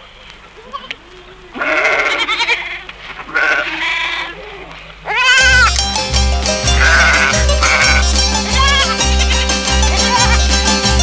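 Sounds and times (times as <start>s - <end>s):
livestock bleating: 0.6s - 5.7s, 6.8s - 9.0s
folk band music with bass pulse: 5.4s - 11.0s.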